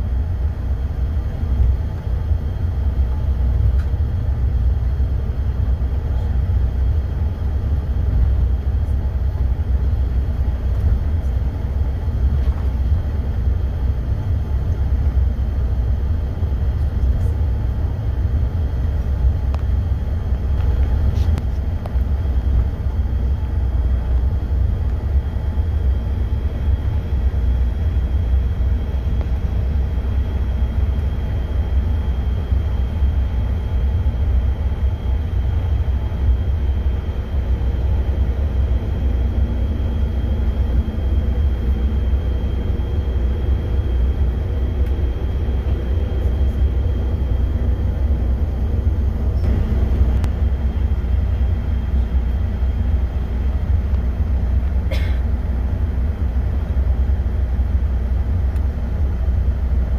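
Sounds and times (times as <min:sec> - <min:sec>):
engine and air system rumble: 0:00.0 - 0:59.9
faint high whine: 0:20.7 - 0:54.1.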